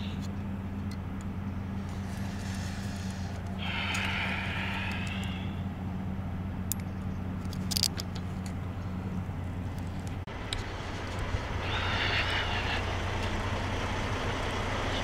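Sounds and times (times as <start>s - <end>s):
truck engine idling: 0.0s - 15.0s
air hiss: 2.0s - 5.6s.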